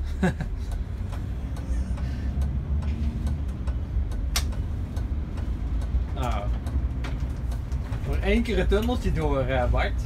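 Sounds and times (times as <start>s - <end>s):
bus engine droning: 0.0s - 10.0s
light ticks: 0.6s - 7.9s
sharp click: 3.3s - 4.6s.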